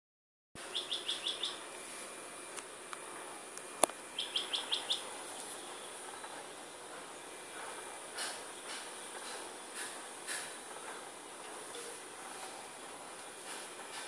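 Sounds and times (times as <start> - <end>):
bird chirping: 0.6 - 1.6, 4.1 - 6.4.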